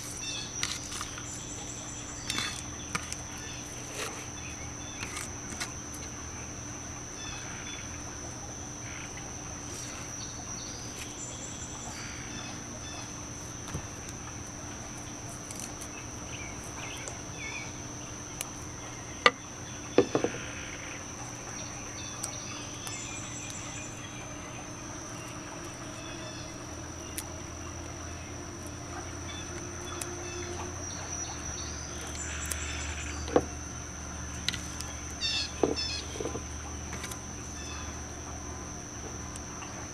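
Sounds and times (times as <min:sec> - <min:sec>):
insects droning: 0:00.0 - 0:39.9
plastic cup knocking on table: 0:20.0 - 0:20.4.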